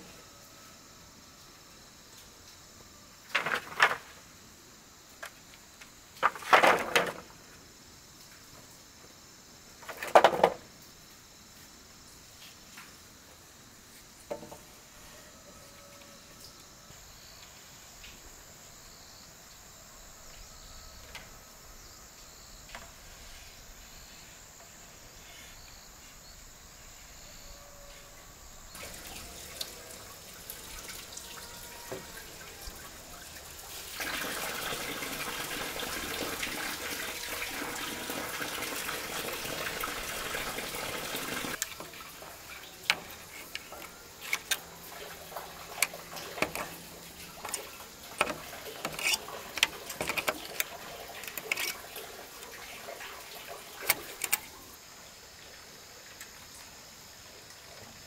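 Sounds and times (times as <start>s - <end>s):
running water: 28.7s - 58.0s.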